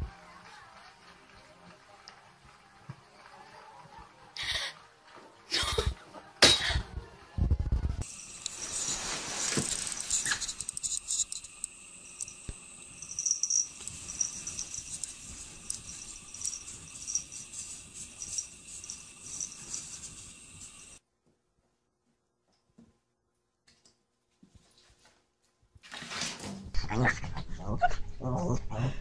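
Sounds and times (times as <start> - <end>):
steady hiss: 8.0 - 21.0.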